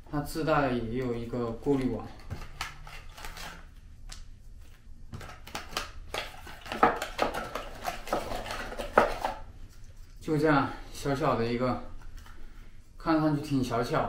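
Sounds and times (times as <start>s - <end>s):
face mask packaging rustling: 1.6s - 10.2s.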